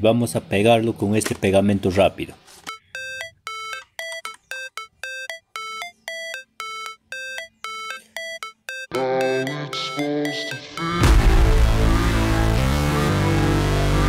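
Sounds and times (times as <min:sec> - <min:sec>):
melody of short ringing notes: 0:02.7 - 0:11.0
fuller music with low notes: 0:11.0 - 0:14.0.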